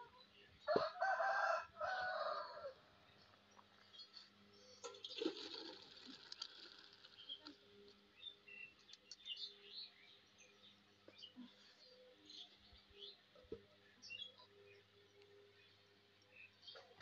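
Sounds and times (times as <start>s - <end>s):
small birds chirping: 3.0s - 5.3s, 6.3s - 17.0s
water splashing into colander: 4.8s - 7.6s.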